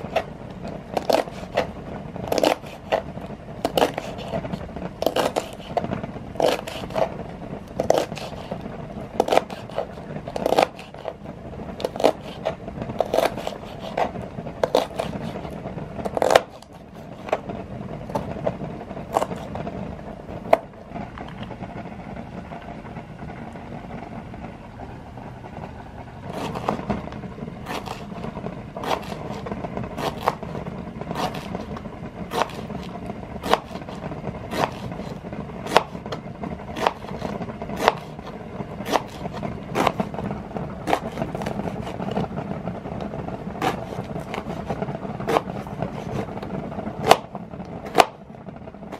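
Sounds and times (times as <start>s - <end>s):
knife slicing on plastic board: 0.9s - 1.7s, 2.3s - 7.2s, 7.8s - 8.6s, 9.2s - 11.2s, 11.8s - 17.5s, 18.1s - 19.6s, 26.3s - 27.0s, 27.7s - 28.2s, 28.8s - 36.1s, 36.8s - 40.2s, 40.8s - 42.3s, 43.6s - 46.4s, 47.0s - 47.3s, 47.9s - 48.2s.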